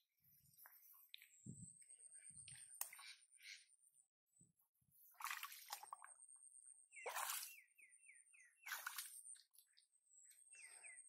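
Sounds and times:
bird chirping: 6.4 - 11.0.

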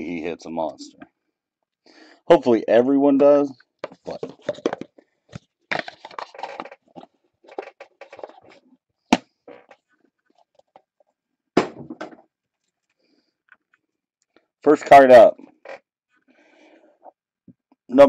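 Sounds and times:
packaging rustling and scraping: 3.9 - 8.7.

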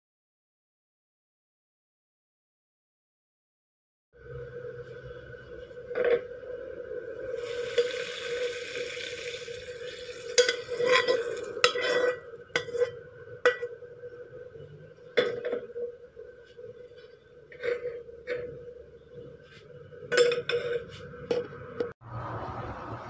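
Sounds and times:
spatula scraping a wok: 7.4 - 13.6.

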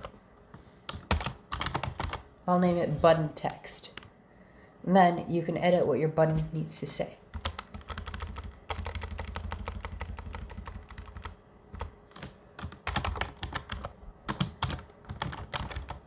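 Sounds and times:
typing on a keyboard: 0.9 - 2.3, 7.3 - 16.0.

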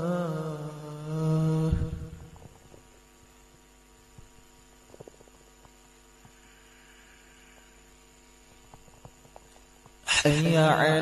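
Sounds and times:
faint electrical mains hum: 0.0 - 11.0.

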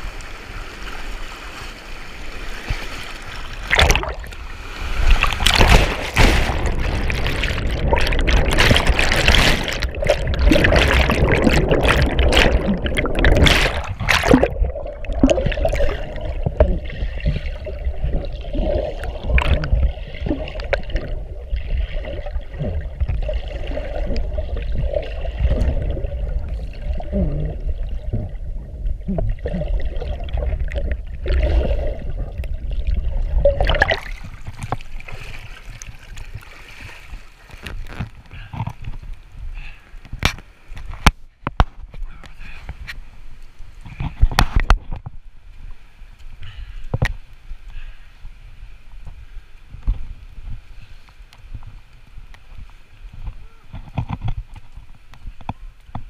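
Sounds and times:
water rushing and splashing: 0.0 - 41.4
muffled underwater gurgling: 5.4 - 34.9.

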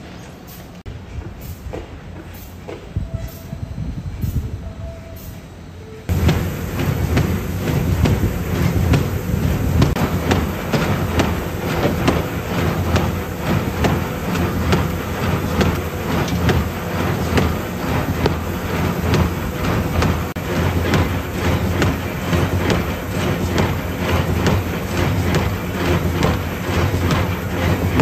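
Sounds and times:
machine low rumble: 3.0 - 28.0
cardboard sheets clattering through rollers: 6.1 - 28.0.

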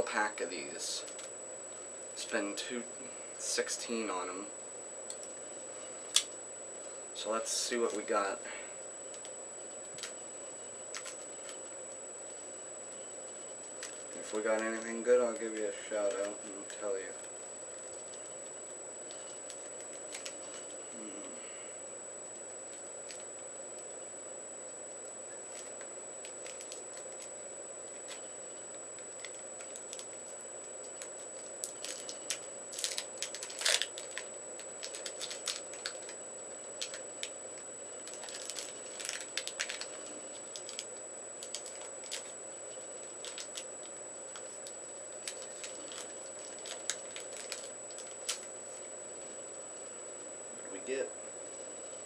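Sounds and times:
faint high whine: 0.0 - 52.0
card wrapper crinkling and tearing: 19.4 - 20.7, 25.5 - 27.3, 30.9 - 36.2, 36.8 - 37.3, 38.0 - 42.3, 43.0 - 43.7, 44.3 - 48.5.

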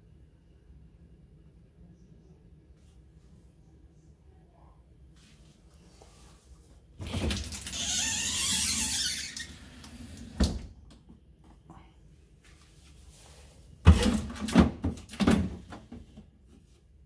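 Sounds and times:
plastic bins knocking and clattering: 13.8 - 16.2.

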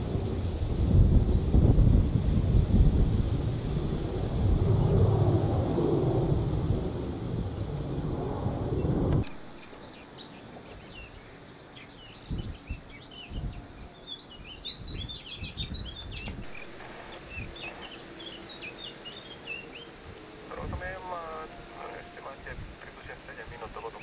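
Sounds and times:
faint low wind rumble: 0.0 - 24.0
small birds chirping: 8.8 - 20.2.

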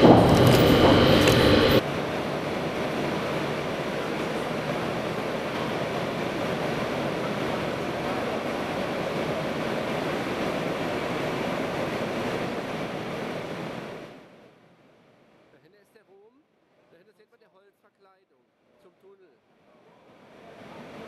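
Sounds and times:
ventilation air rushing: 0.0 - 4.0.

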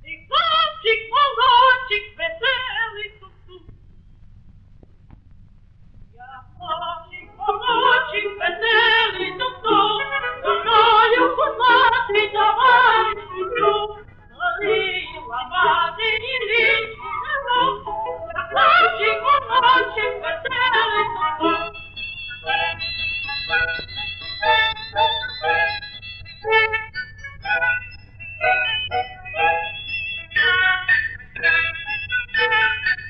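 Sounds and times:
faint low hum: 0.0 - 33.0
high voice singing with vibrato: 6.2 - 25.8, 28.4 - 33.0
held instrumental notes: 7.1 - 33.0.

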